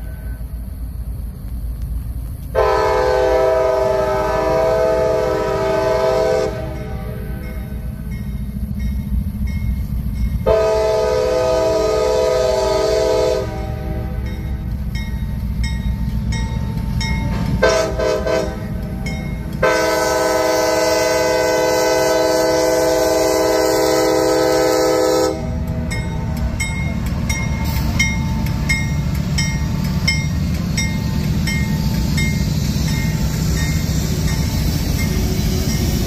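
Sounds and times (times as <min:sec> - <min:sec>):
diesel locomotives rumbling: 0:00.0 - 0:36.0
locomotive air horn: 0:02.5 - 0:07.8, 0:10.4 - 0:14.3, 0:17.3 - 0:26.4
crossing bell dinging: 0:06.5 - 0:10.9, 0:13.6 - 0:21.6, 0:23.8 - 0:36.0.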